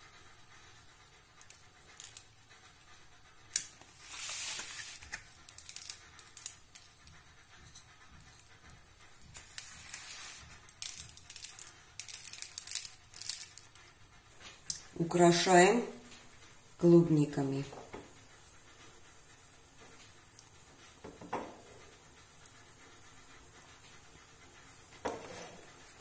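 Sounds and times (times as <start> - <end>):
coconut flakes rustling: 3.9 - 6.7, 9.4 - 13.9.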